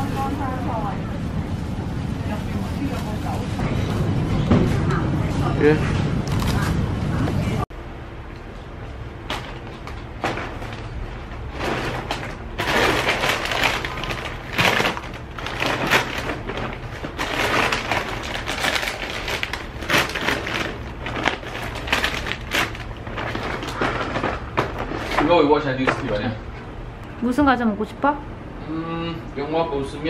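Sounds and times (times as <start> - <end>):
plastic snack bags crinkling: 11.6 - 26.2.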